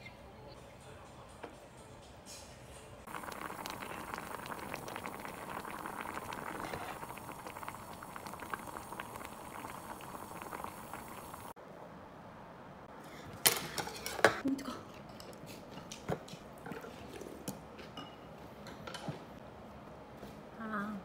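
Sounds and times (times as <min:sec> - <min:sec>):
stew bubbling and popping: 0:03.1 - 0:11.6.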